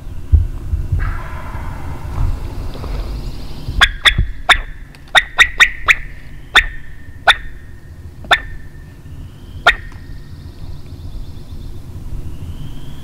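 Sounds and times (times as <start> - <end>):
turkey clucking: 1.0 - 3.0, 3.8 - 7.6, 8.2 - 8.8, 9.6 - 10.0.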